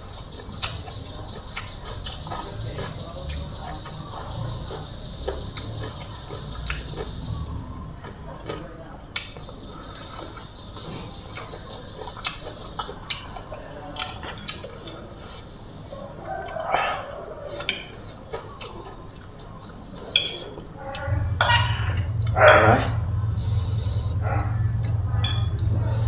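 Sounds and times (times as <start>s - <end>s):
chewing and slurping: 0.4s - 22.6s
low steady hum: 18.8s - 26.0s.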